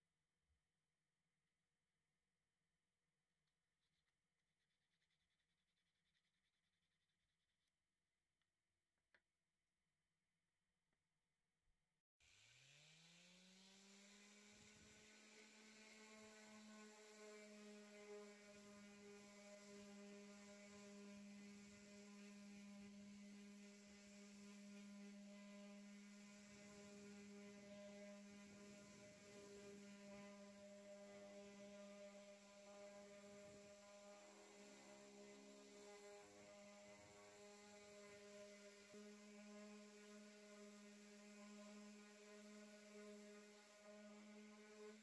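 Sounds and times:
electric sander motor hum: 12.3 - 45.0.

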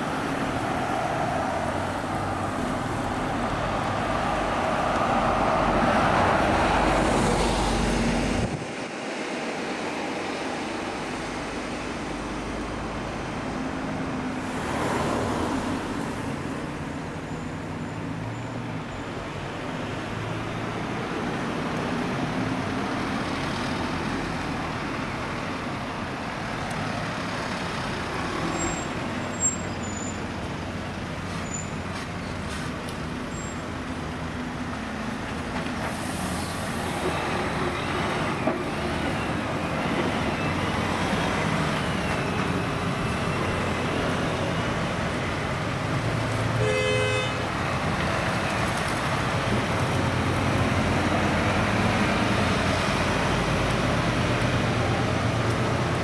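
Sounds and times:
vehicles driving slowly past: 0.0 - 56.0
short vehicle horn toot: 46.6 - 47.4.

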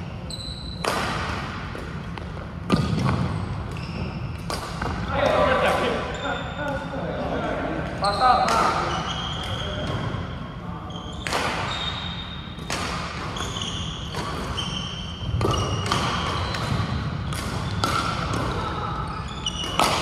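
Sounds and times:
shoes squeaking on floor: 0.3 - 0.9, 2.7 - 4.9, 6.0 - 6.7, 8.0 - 12.5, 13.3 - 18.0, 18.6 - 20.0
racket hitting shuttlecock: 0.8 - 3.8, 4.4 - 5.1, 11.2 - 11.7, 12.6 - 14.6, 15.4 - 18.6, 19.5 - 20.0.

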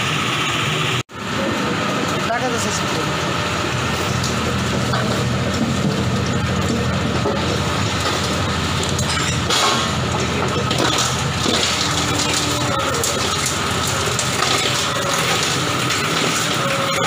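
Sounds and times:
machine hum: 0.0 - 17.0
grinder crushing shells: 4.2 - 17.0.

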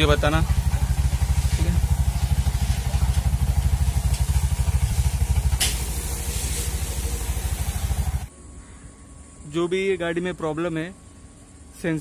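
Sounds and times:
auto rickshaw engine idling: 0.0 - 8.3.

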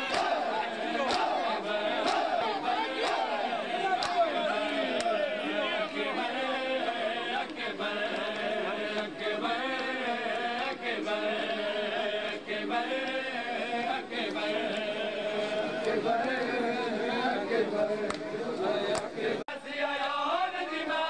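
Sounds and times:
men chanting in chorus: 0.0 - 21.0
hands slapping bare chests: 0.1 - 0.4, 1.0 - 1.4, 4.0 - 4.3.

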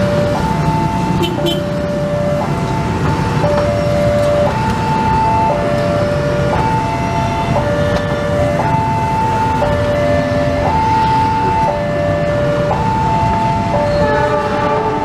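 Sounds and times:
level crossing alarm two-tone: 0.0 - 14.8.

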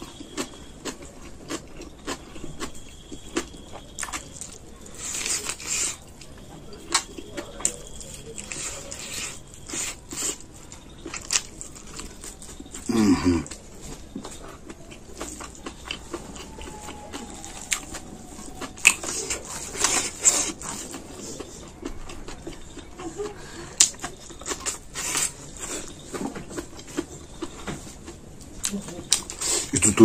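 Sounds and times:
wet chewing and lip smacks: 0.0 - 29.8.

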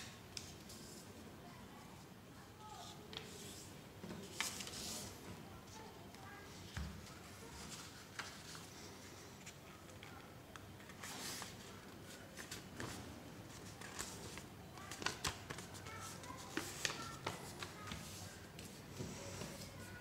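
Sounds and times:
paper rustling: 4.2 - 5.1, 7.4 - 9.6, 10.8 - 18.8
paper crinkles and taps: 13.8 - 18.8.

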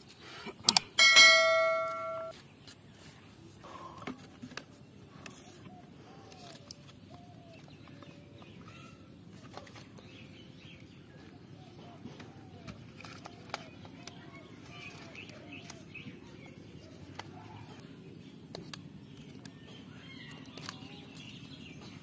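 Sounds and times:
bright bell ding: 1.0 - 2.3.

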